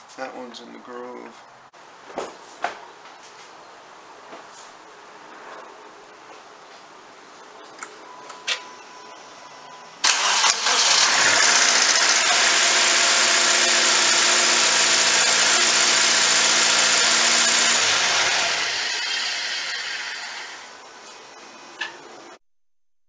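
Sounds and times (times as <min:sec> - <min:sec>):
car engine cranking and idling: 0:10.0 - 0:18.9.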